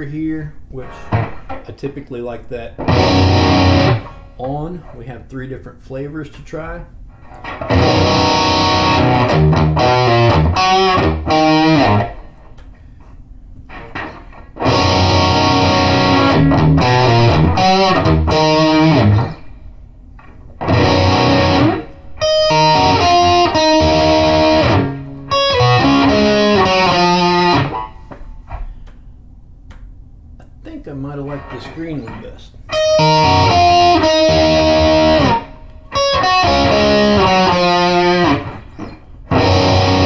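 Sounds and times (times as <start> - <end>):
overdriven electric guitar lead: 2.8 - 4.2, 7.4 - 12.4, 13.7 - 19.4, 20.6 - 28.0, 32.7 - 40.0.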